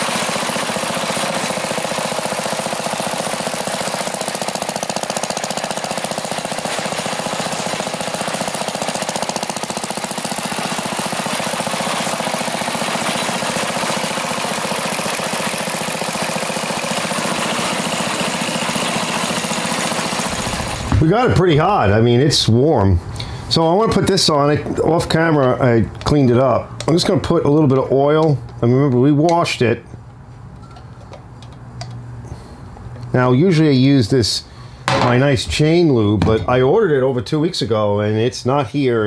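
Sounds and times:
small engine running: 0.0 - 21.0.

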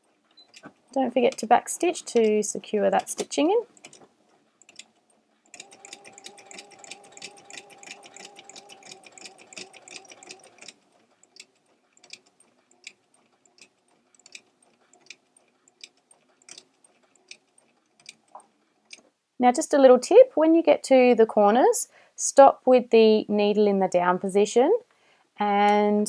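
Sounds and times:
sewing machine stitching: 0.0 - 19.1.

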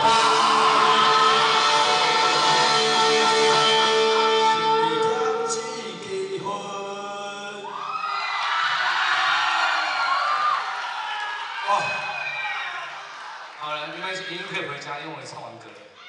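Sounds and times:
rock band chord ringing: 0.0 - 6.1
crowd voices: 0.0 - 6.2.

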